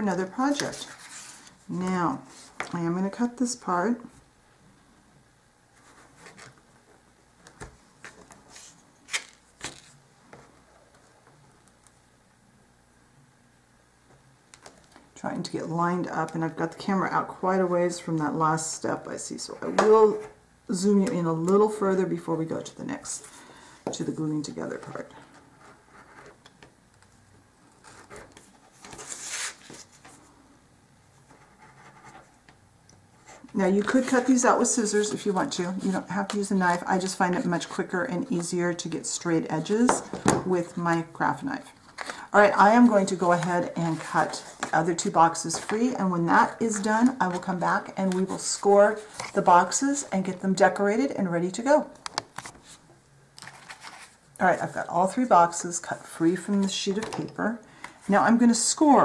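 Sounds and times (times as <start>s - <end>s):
paper rustling: 7.6s - 10.0s, 27.8s - 30.3s, 41.8s - 46.0s, 46.7s - 49.6s, 53.4s - 54.2s.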